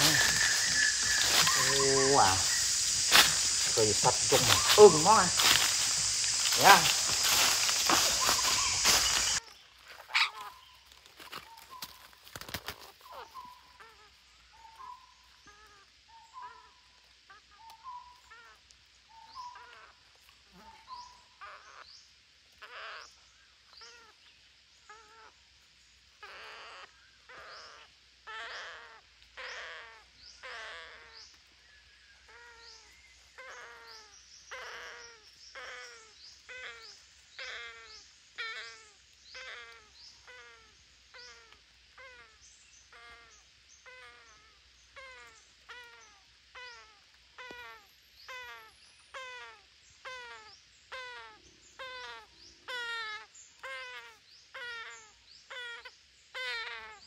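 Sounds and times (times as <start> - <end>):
parakeets calling: 0.0 - 10.8, 22.6 - 24.2, 26.2 - 31.3, 32.3 - 57.0.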